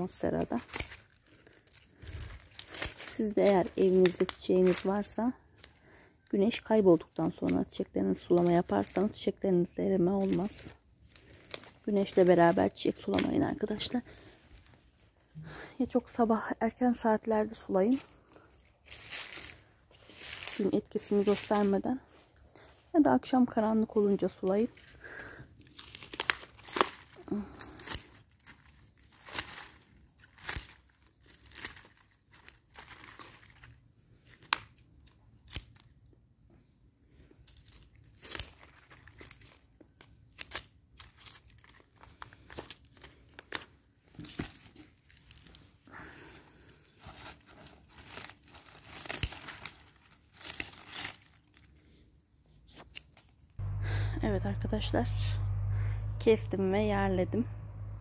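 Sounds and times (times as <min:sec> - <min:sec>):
leaves rustling and crackling: 0:00.0 - 0:05.2, 0:18.0 - 0:22.4, 0:25.6 - 0:33.8, 0:46.9 - 0:51.7.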